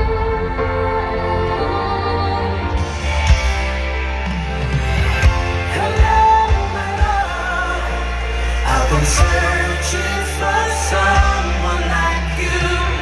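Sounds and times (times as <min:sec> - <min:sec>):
live band playing pop music: 0:00.0 - 0:13.0
person singing: 0:05.2 - 0:13.0.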